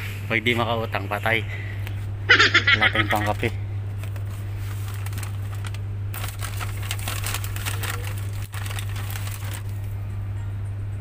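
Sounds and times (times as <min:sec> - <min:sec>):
low hum: 0:00.0 - 0:11.0
crackling rustling clicks: 0:03.1 - 0:10.0.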